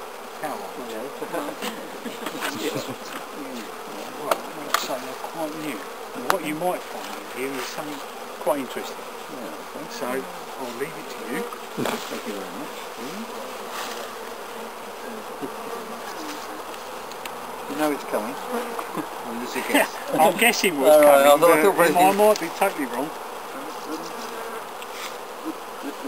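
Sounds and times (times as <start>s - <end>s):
bees buzzing: 0.0s - 26.0s
colony humming: 0.1s - 26.0s.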